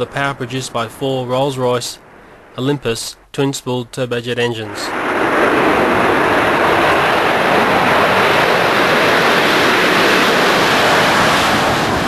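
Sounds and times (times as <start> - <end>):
jet engines at takeoff: 4.6 - 12.0.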